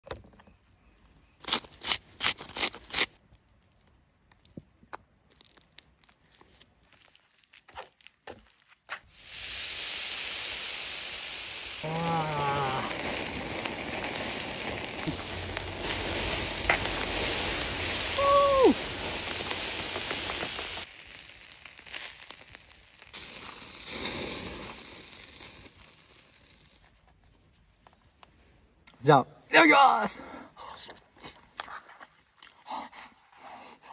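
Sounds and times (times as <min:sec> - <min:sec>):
meat sizzling on a grill: 0:09.1 - 0:26.8.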